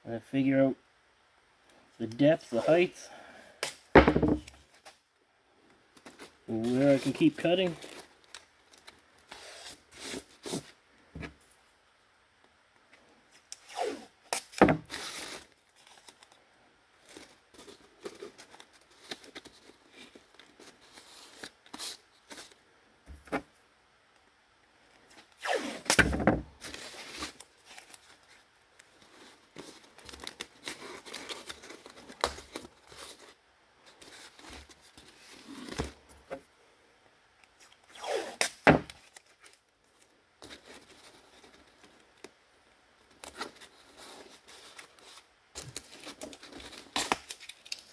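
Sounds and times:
cardboard handling noise: 5.9s - 11.4s, 17.0s - 23.6s, 25.2s - 36.5s, 43.1s - 47.9s
tape pulled off roll and torn: 13.3s - 16.4s, 25.1s - 36.4s, 37.4s - 42.4s, 43.0s - 47.9s.

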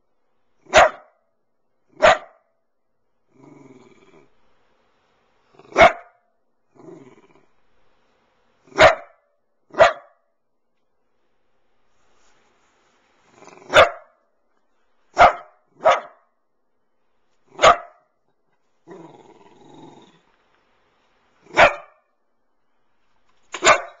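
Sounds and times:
dog barking: 0.6s - 1.3s, 1.9s - 2.6s, 5.6s - 6.3s, 8.6s - 10.3s, 13.6s - 14.2s, 15.1s - 16.4s, 17.5s - 18.2s, 21.4s - 22.1s, 23.5s - 24.0s
dog growling: 3.3s - 4.4s, 5.5s - 5.8s, 6.7s - 7.6s, 13.3s - 13.8s, 18.8s - 20.3s.

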